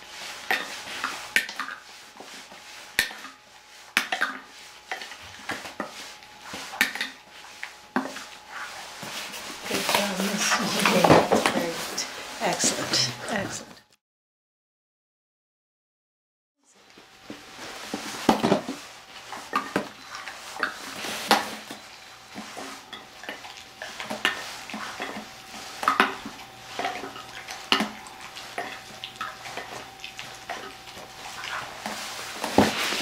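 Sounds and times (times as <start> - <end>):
dog eating from metal bowl: 19.3 - 33.0.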